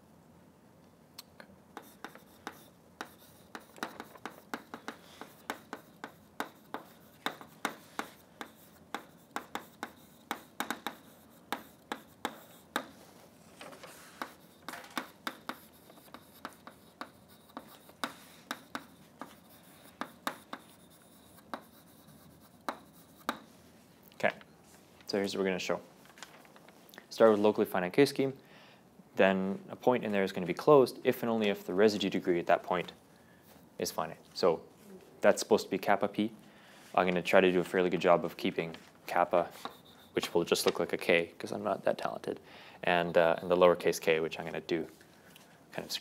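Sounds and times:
chalk tapping and scratching: 1.8 - 23.6, 37.6 - 40.9, 43.0 - 44.2.

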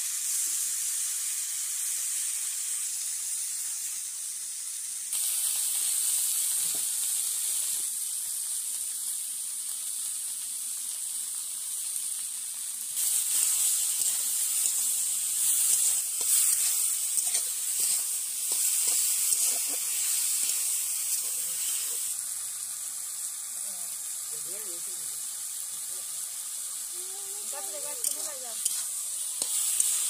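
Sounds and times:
vegetables sizzling in a pan: 0.0 - 30.0
spatula scraping against pan: 13.3 - 22.0, 27.9 - 30.0.

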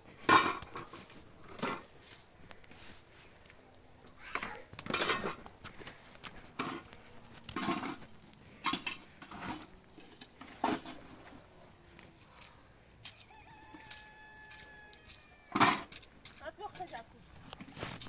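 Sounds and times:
dishes and pots clattering: 4.9 - 5.4, 7.5 - 8.0, 8.6 - 9.7.

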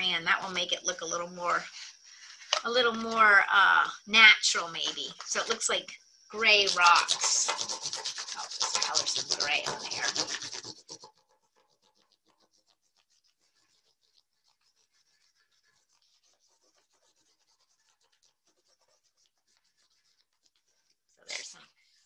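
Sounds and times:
crayon scratching on paper plate: 0.0 - 22.0.

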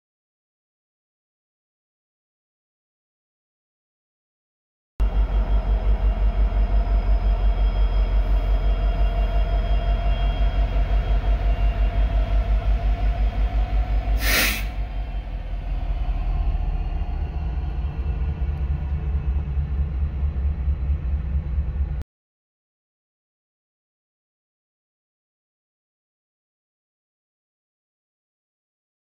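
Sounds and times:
diesel locomotive throbbing: 5.0 - 22.0
air hiss: 14.2 - 14.8.

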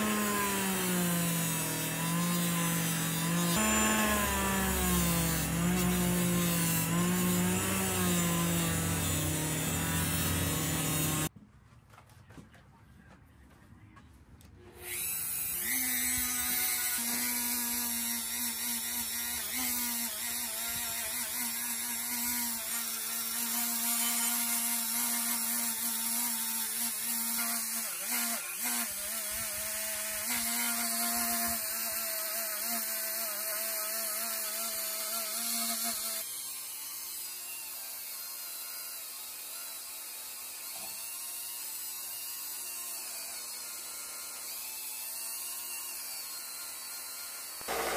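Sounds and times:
bench wheel whirring: 0.0 - 11.3, 47.6 - 47.9.

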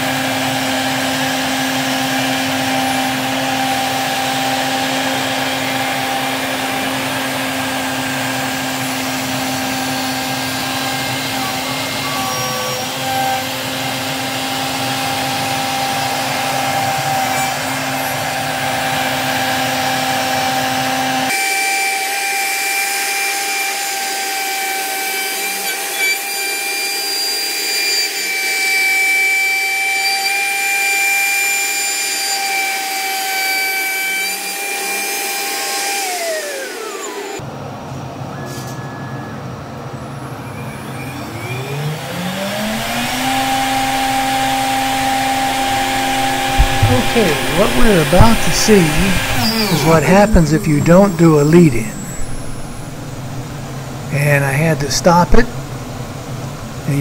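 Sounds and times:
dust extractor running: 0.0 - 21.5, 40.7 - 57.0
router spindle cutting wood: 0.0 - 37.4, 40.4 - 57.0
high whine: 42.5 - 57.0.

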